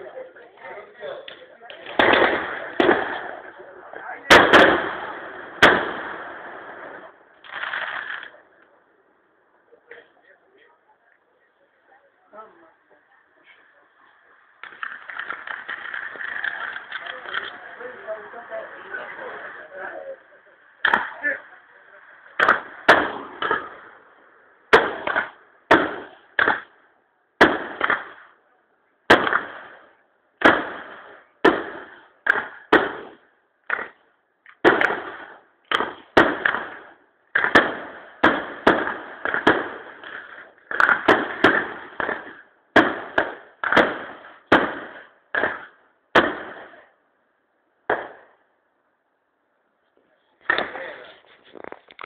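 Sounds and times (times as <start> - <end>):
firework shells bursting: 1.2 - 8.4, 14.6 - 17.8, 22.4 - 24.0, 24.7 - 26.8, 27.4 - 28.4, 29.1 - 46.8.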